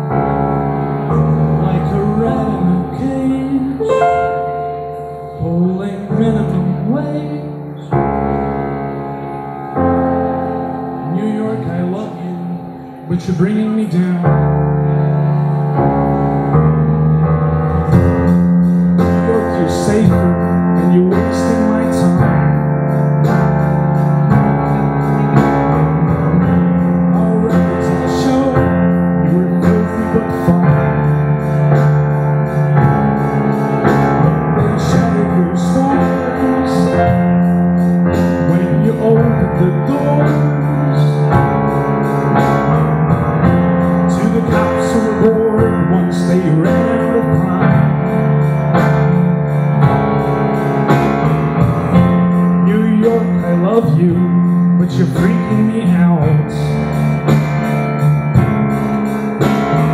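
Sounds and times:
digital piano chords: 0.0s - 59.9s
electric bass guitar: 0.0s - 59.9s
steady beat: 1.8s - 6.6s, 17.6s - 59.9s.

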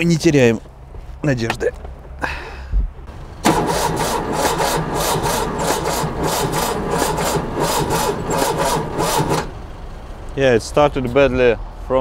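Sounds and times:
car engine starting and running: 3.0s - 11.8s.

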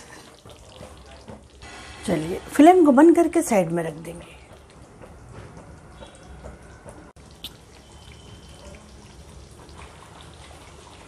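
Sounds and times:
hot gravy popping and dripping: 0.0s - 1.7s, 4.4s - 10.8s.

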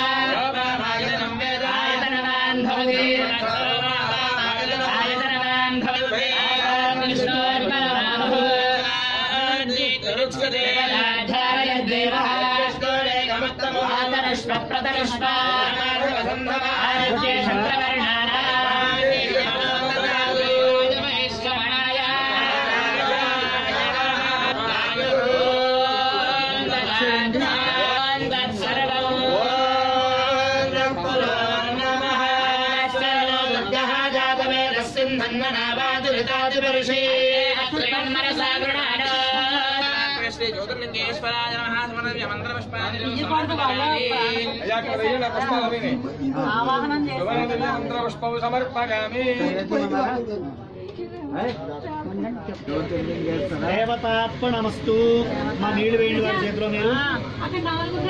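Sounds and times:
person chanting: 0.0s - 41.6s.

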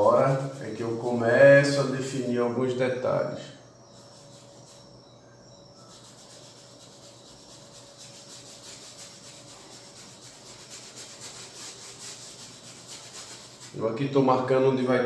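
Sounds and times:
paintbrush scrubbing on canvas: 0.0s - 2.3s, 3.9s - 5.0s, 5.8s - 14.2s.

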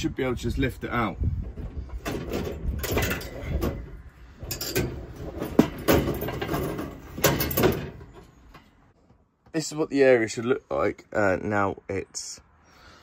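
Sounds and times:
metal scraping and knocking: 1.3s - 9.0s.

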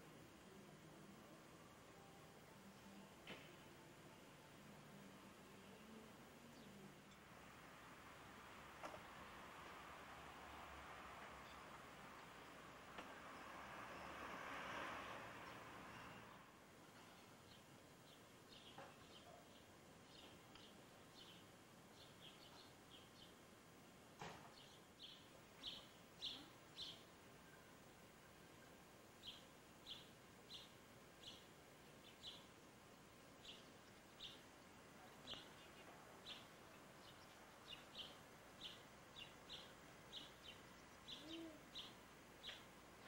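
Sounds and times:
low background hiss: 0.0s - 43.0s
small bird chirping: 24.5s - 27.7s, 29.2s - 32.5s, 33.4s - 43.0s.

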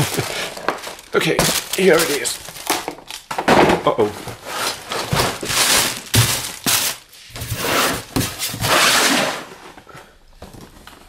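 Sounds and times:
plastic air cushions crinkling: 0.0s - 3.3s, 4.1s - 7.2s.

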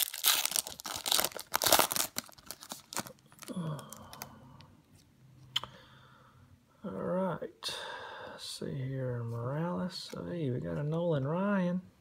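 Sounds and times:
foil wrapper crinkling and tearing: 0.0s - 4.2s.

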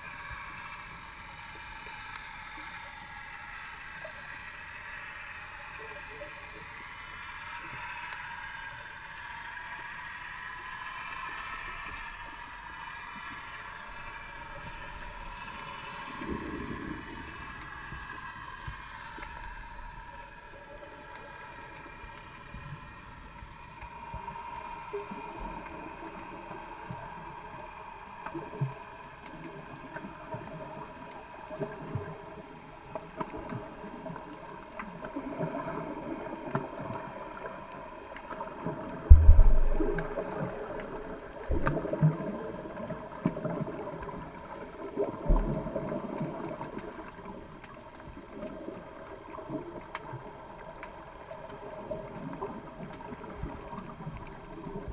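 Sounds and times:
underwater hiss and gurgle: 0.0s - 54.9s
heavy low thump: 39.1s - 40.3s.

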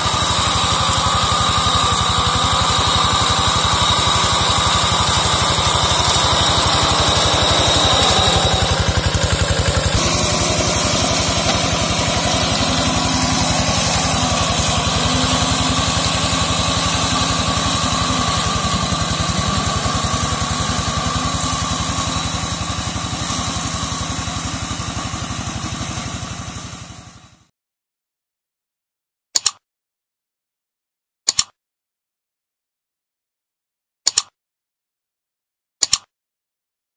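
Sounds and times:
hand tractor engine chugging: 0.0s - 27.3s.

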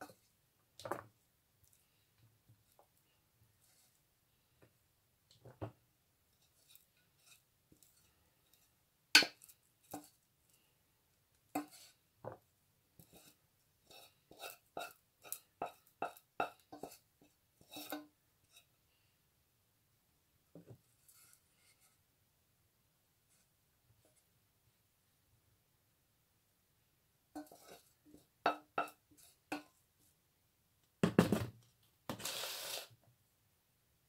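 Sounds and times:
spoon scraping metal pot: 11.6s - 12.0s, 13.0s - 17.0s, 17.6s - 18.7s, 27.4s - 29.7s, 32.1s - 32.9s.

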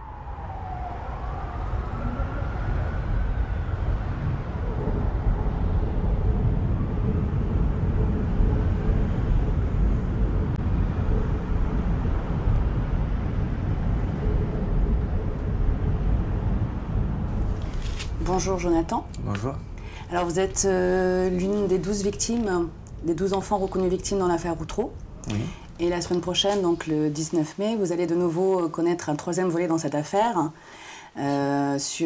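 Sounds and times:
faint siren: 0.0s - 18.9s
road traffic rumble: 0.0s - 28.7s.

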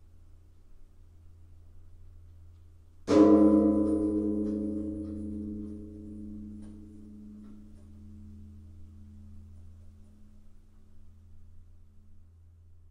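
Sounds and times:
low hum: 0.0s - 12.9s
large bell ringing: 3.1s - 9.6s.

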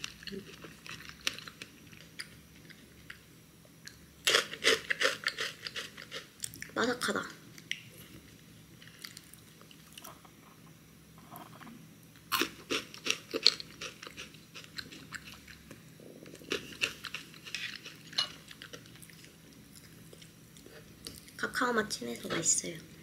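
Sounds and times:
granola crunching while chewed: 0.0s - 3.2s, 3.8s - 6.8s, 12.3s - 21.4s.

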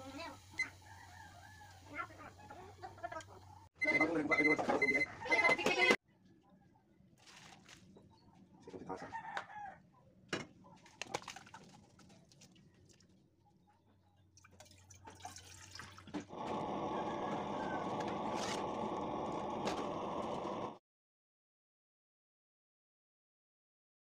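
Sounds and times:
water poured into metal saucepan: 14.4s - 20.5s.

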